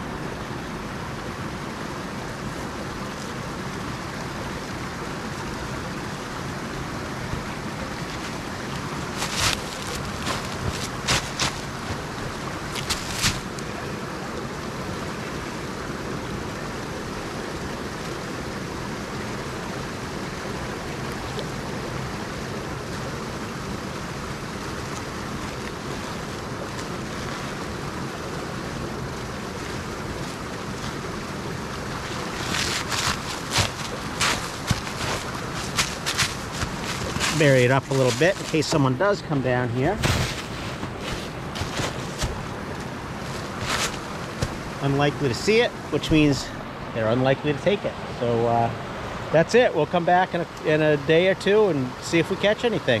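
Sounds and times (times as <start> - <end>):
stream rushing over its bed: 0.0 - 53.0
boots crunching in snow: 8.1 - 13.5, 32.0 - 38.8, 39.8 - 44.8.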